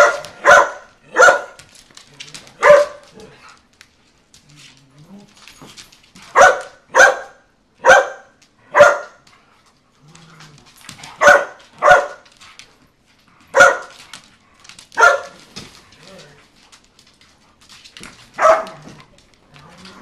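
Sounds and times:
dog barking: 0.0s - 1.6s, 2.6s - 3.0s, 6.4s - 9.2s, 11.2s - 12.2s, 13.5s - 13.9s, 15.0s - 15.4s, 18.4s - 18.8s.

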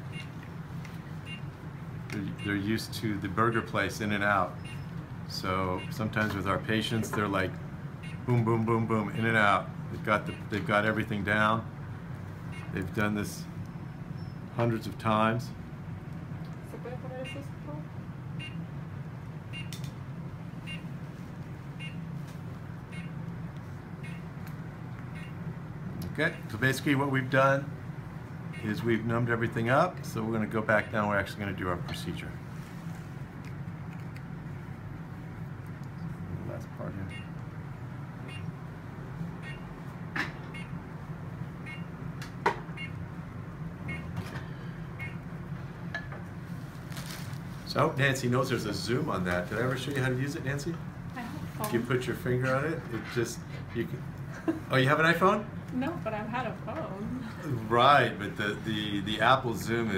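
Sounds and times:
steady low hum: 0.0s - 59.9s
high electronic beeps: 4.6s - 4.9s, 38.3s - 38.5s
short electronic beeps: 4.6s - 4.9s, 18.4s - 18.6s, 24.0s - 24.3s, 25.2s - 25.4s, 37.1s - 37.4s, 38.3s - 38.5s, 43.9s - 44.1s, 45.0s - 45.2s.

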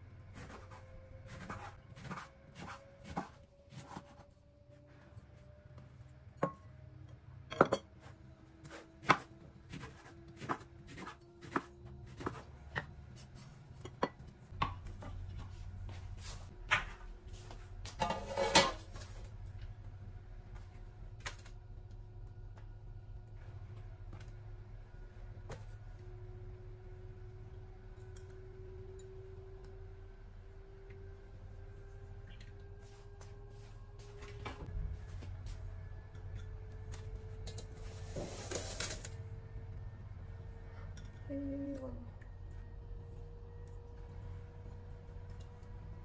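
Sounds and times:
faint low hum: 0.0s - 46.0s.

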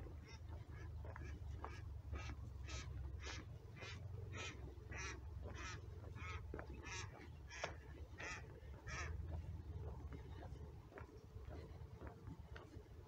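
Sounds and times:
duck rasping calls: 0.2s - 9.2s.

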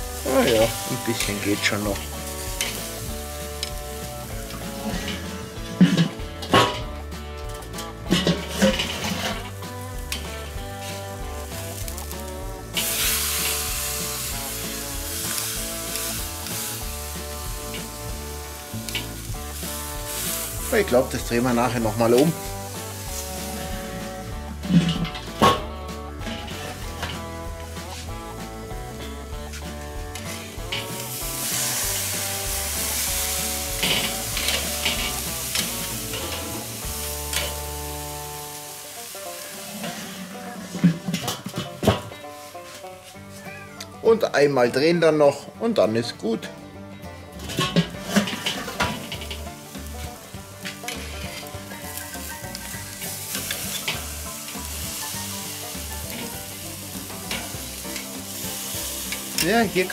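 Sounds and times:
steak sizzling on a grill: 0.0s - 43.4s, 47.3s - 59.9s
metal tongs clicking on grate: 33.8s - 36.4s.

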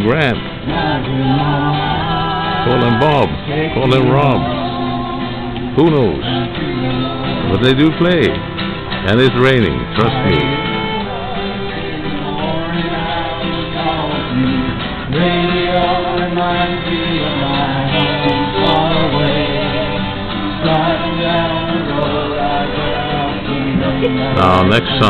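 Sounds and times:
acoustic guitar strumming: 0.0s - 25.0s
people singing together: 0.4s - 8.3s, 9.9s - 25.0s
violin playing: 9.1s - 11.3s.

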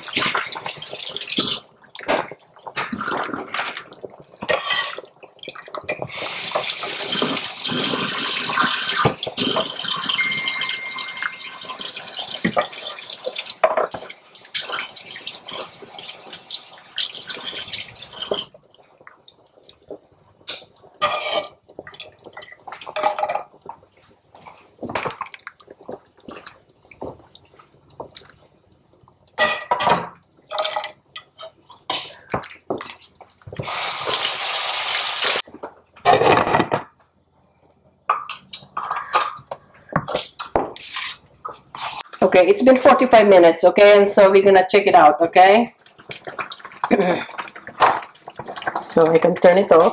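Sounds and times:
metal ladle clinking on pot: 10.0s - 12.7s.

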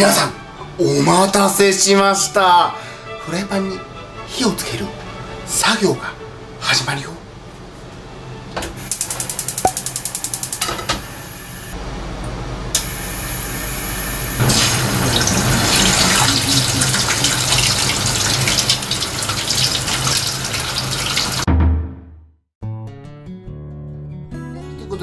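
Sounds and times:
gas stove igniter clicking: 8.6s - 11.0s
hot oil sizzling and crackling: 8.8s - 11.8s, 12.8s - 21.5s.

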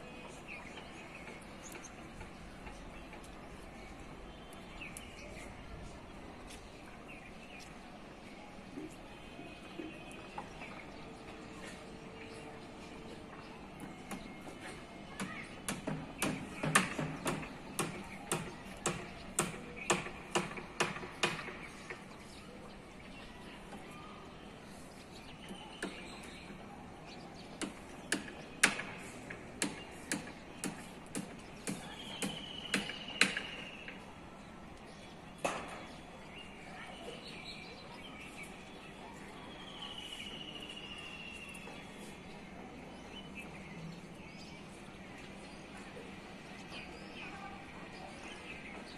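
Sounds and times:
sharp knocks: 15.2s - 22.0s.

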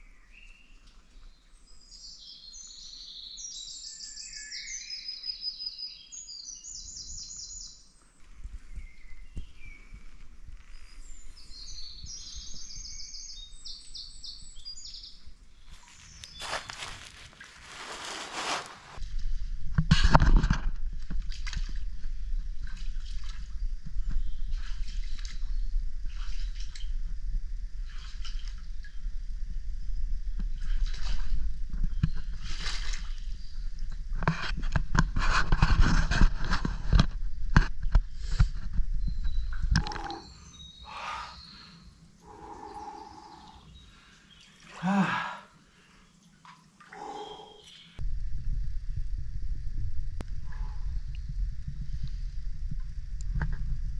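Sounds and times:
water sloshing around wading feet: 15.7s - 19.0s
man moaning: 44.8s - 45.5s
steady low rumble: 48.0s - 53.9s.

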